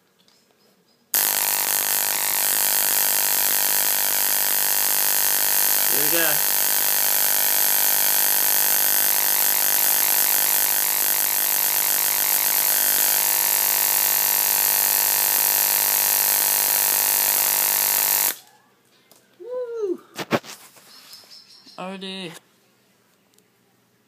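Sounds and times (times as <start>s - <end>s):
relay chattering: 1.2s - 13.6s
electrical arc buzzing: 1.2s - 18.4s.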